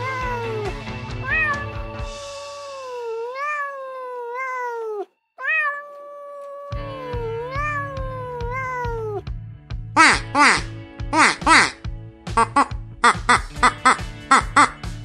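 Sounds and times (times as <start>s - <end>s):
cat meowing: 0.0s - 9.2s
background music with steady beat: 6.8s - 15.0s.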